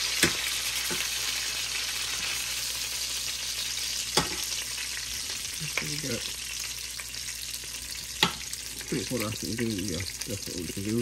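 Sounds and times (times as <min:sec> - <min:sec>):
chicken sizzling in oil: 0:00.0 - 0:11.0.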